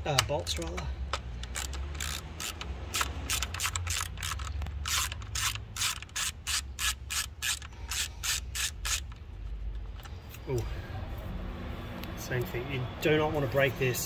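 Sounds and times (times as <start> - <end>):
socket ratchet clicking: 0.1 - 9.2.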